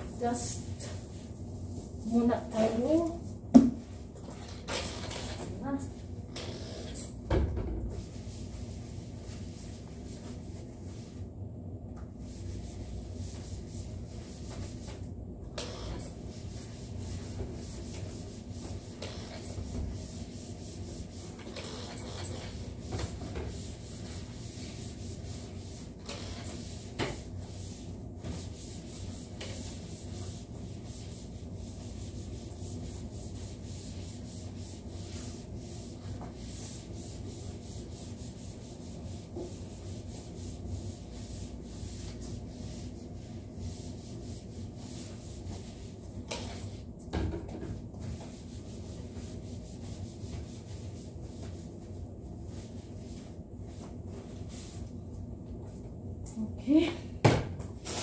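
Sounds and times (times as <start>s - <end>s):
cloth wiping wooden table: 8.0s - 11.3s, 15.7s - 46.8s, 48.0s - 55.0s.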